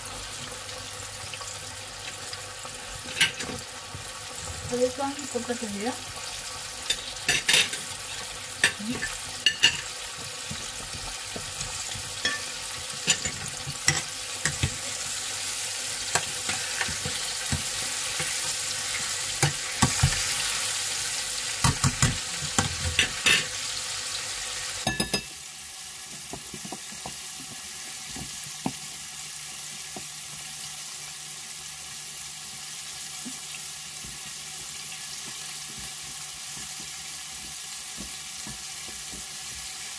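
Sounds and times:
chicken sizzling in hot oil: 0.0 - 39.9
metal tongs tapping pot: 8.6 - 9.9, 11.9 - 14.8, 21.6 - 23.5, 24.8 - 25.3.

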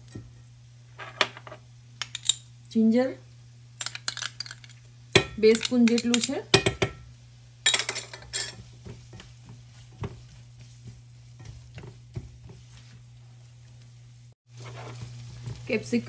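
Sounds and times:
light sizzling: 0.0 - 16.0
spatula scraping frying pan: 8.2 - 13.5, 14.5 - 15.6.

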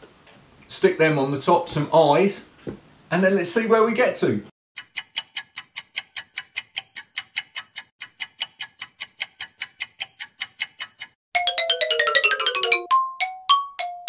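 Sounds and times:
rapid clock ticking: 4.8 - 11.6.

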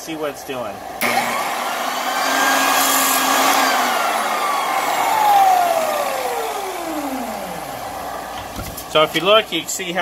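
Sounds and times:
floor sander motor whine: 1.0 - 8.7.

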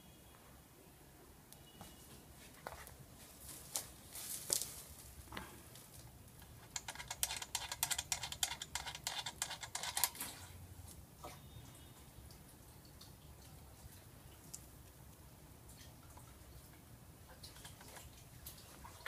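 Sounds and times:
hose fitting clicking and rattling: 6.4 - 10.2.

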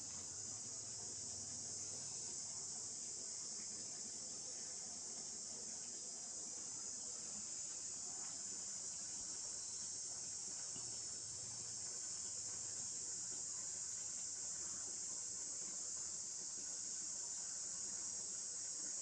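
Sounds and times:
insects chorus: 0.0 - 19.0.

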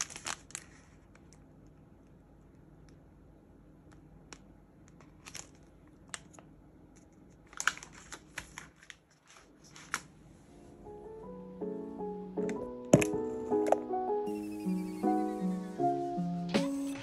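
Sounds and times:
packaging crackling and clicking: 0.0 - 1.4, 4.9 - 10.1
faint room tone hum: 0.0 - 17.0.

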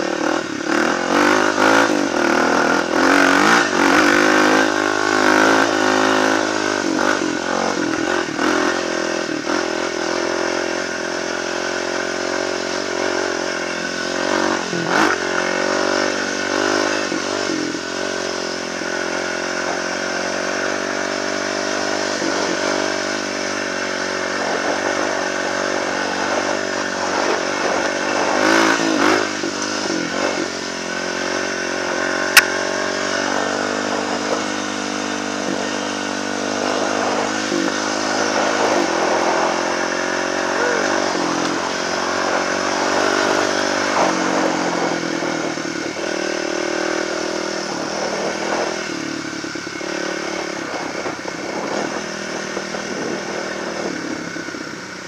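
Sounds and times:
dirt bike engine revving: 0.0 - 55.0
sharp click: 32.3 - 32.6.

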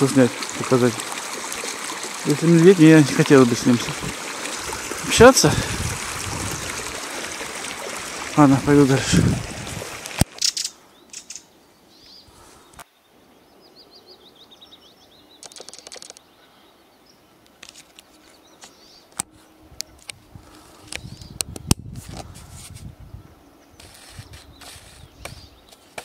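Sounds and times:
faint outdoor background: 0.0 - 26.0
low rustling rumble: 3.8 - 8.3, 8.9 - 10.1
sharp clicks: 15.4 - 16.2.

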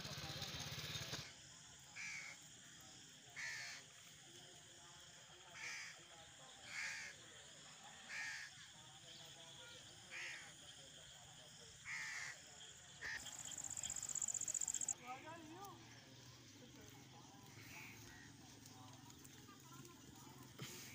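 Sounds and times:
bird calling: 13.0 - 15.0.

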